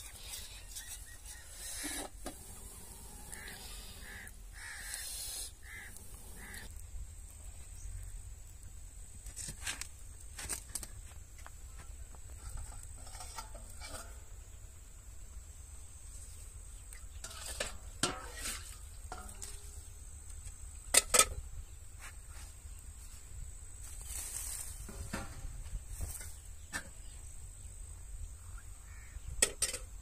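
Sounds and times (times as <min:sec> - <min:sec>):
soft scraping rustle: 0:09.2 - 0:14.6, 0:16.1 - 0:19.9, 0:21.9 - 0:27.2
pots and utensils clinking: 0:12.5 - 0:14.2, 0:17.2 - 0:19.6.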